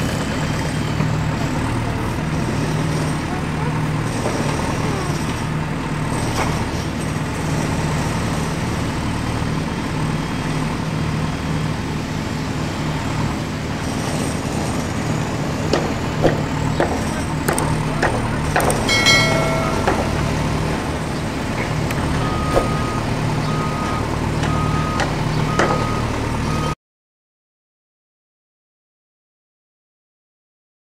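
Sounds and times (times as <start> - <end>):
diesel engine rumble: 0.0 - 26.8
reversing alarm beeps: 18.6 - 21.2, 22.0 - 26.8
short tone: 18.9 - 21.1.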